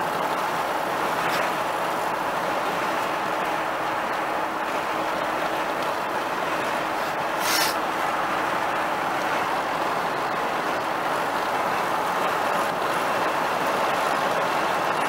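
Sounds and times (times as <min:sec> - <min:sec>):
road and tyre noise in car: 0:00.0 - 0:15.0
brief hiss: 0:07.4 - 0:07.8.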